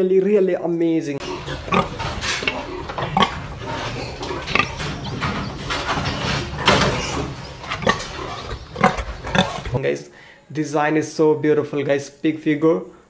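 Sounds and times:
pig grunting: 0:01.2 - 0:09.8
steady low barn hum: 0:01.2 - 0:09.8.

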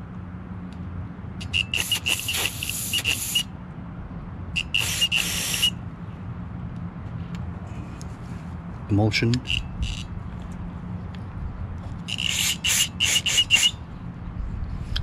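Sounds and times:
aerosol spray hissing: 0:01.7 - 0:03.4.

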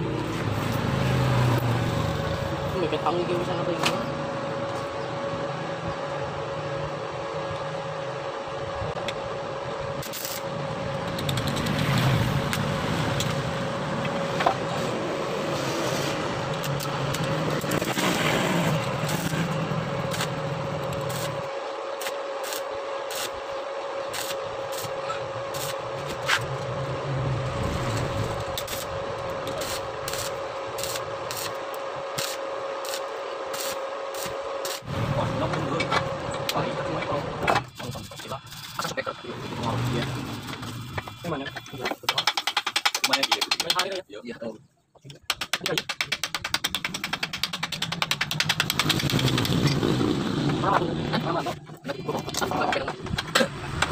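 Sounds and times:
steady hum: 0:00.0 - 0:42.1
welding arc crackling: 0:10.0 - 0:13.8, 0:16.1 - 0:40.8, 0:46.3 - 0:51.1.

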